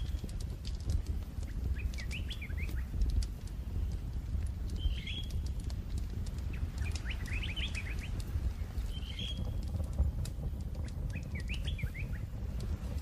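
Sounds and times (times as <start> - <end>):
low rumble: 0.0 - 13.0
birds chirping: 1.4 - 3.2, 4.7 - 5.7, 6.3 - 9.9, 10.7 - 12.4.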